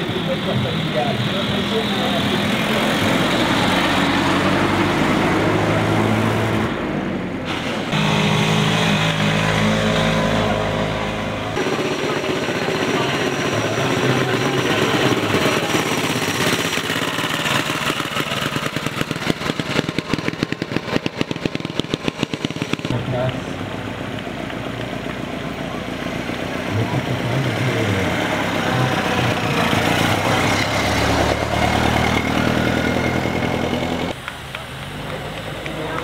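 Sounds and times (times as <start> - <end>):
vintage vehicle engines passing: 0.0 - 36.0
old motorcycle pulling away: 11.6 - 23.0, 26.1 - 34.2.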